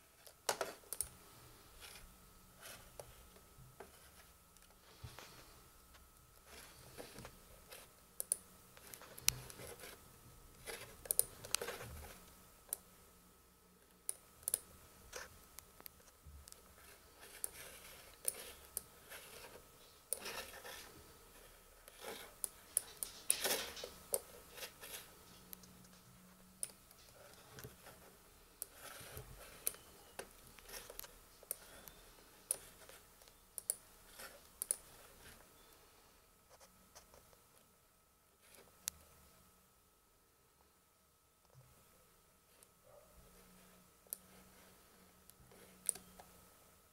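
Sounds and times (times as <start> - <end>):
clicks and scratching on a laptop: 0.2 - 5.5, 6.4 - 12.9, 14.1 - 35.5, 36.5 - 37.6, 42.5 - 46.4
faint steady high tone: 25.3 - 36.3, 42.6 - 46.8.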